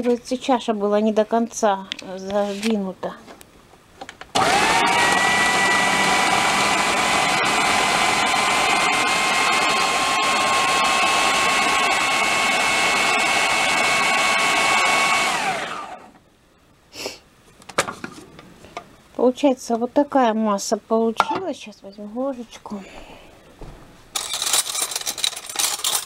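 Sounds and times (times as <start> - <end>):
food processor motor whine: 4.4 - 16.2.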